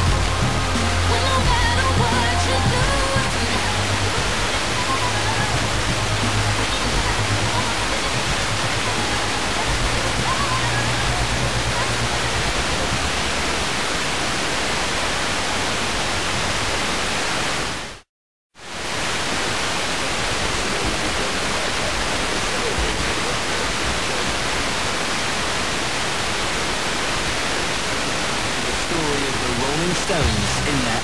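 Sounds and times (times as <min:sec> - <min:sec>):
radio static hiss: 0:27.6 - 0:31.0.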